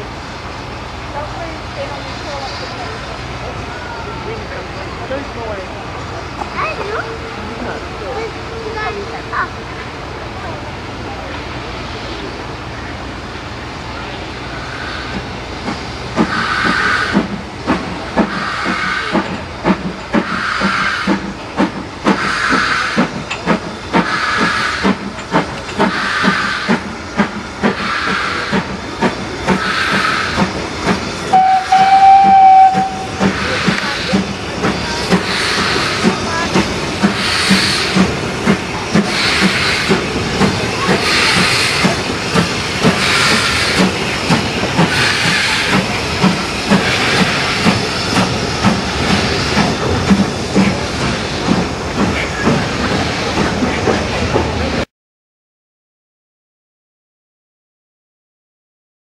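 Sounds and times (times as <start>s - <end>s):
hissing steam: 0.0s - 54.9s
steam locomotive exhaust beats: 0.0s - 54.9s
locomotive whistle: 31.3s - 33.6s.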